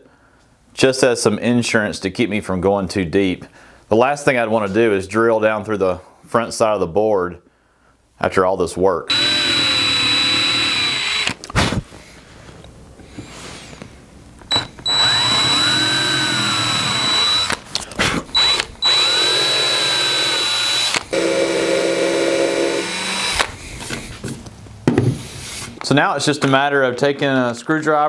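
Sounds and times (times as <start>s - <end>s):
cordless drill drilling into wood: 9.1s - 11.8s, 14.5s - 23.6s.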